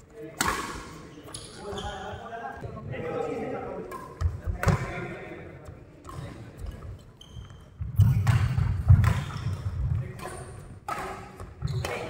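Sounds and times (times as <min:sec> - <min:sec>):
racket hitting shuttlecock: 0:00.3 - 0:01.0, 0:08.0 - 0:12.0
shoe squeaks: 0:01.1 - 0:02.4, 0:06.1 - 0:10.6, 0:11.6 - 0:12.0.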